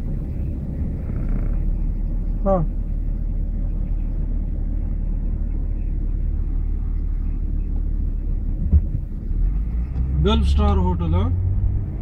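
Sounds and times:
car engine and tyres rumbling: 0:00.0 - 0:12.0
dull thump: 0:08.6 - 0:09.0.

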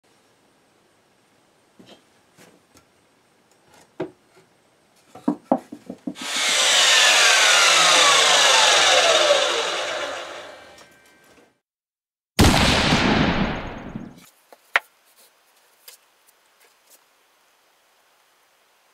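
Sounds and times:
wooden boards knocking: 0:05.2 - 0:06.2
miter saw cutting wood: 0:06.2 - 0:10.9
saw blade spinning down: 0:06.2 - 0:10.9.

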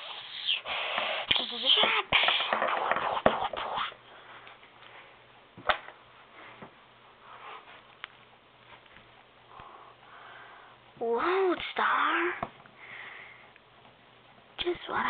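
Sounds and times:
faint breathing: 0:09.5 - 0:10.9, 0:12.7 - 0:13.6.

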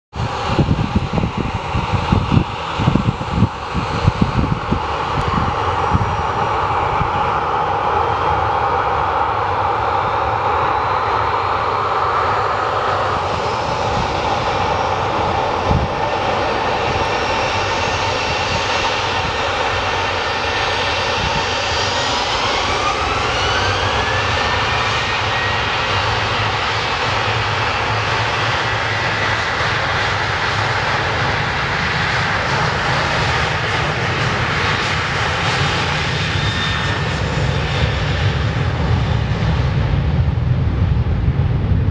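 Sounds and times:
jet engines whining: 0:00.1 - 0:41.9.

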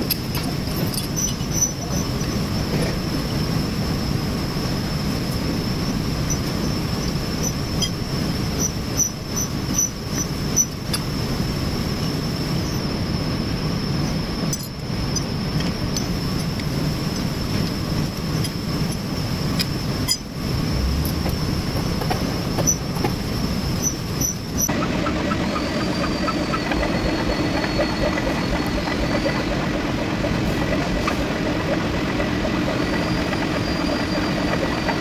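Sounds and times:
thin high whine: 0:00.0 - 0:35.0
workshop machinery rumble: 0:14.9 - 0:35.0.

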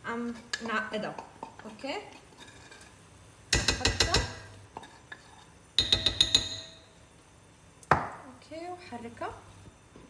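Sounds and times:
mortar knocking against pot rim: 0:05.8 - 0:06.8.

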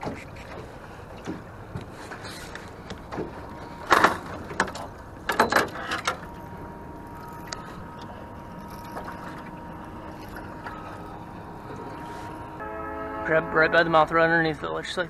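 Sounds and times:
gear knocking and rattling in boat: 0:00.0 - 0:12.6
water noise: 0:00.0 - 0:15.0
wind: 0:00.0 - 0:15.0
faint thin whine: 0:03.4 - 0:12.6.

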